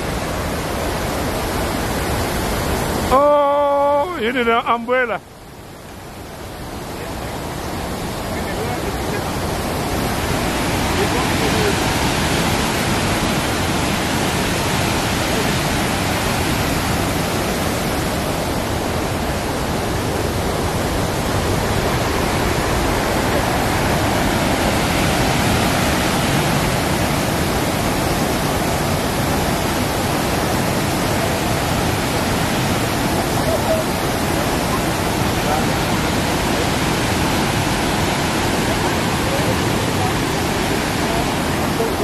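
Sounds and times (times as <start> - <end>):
waterfall rushing: 0.0 - 42.0.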